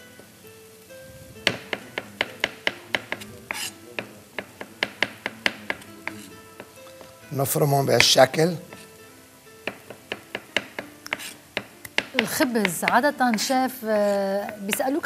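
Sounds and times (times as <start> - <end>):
knife chopping on cutting board: 1.5 - 6.8, 8.0 - 8.9, 9.7 - 13.5.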